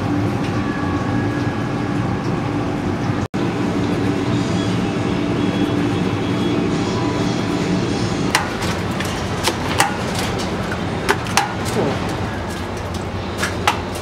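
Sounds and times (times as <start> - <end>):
kitchen background hum: 0.0 - 14.0.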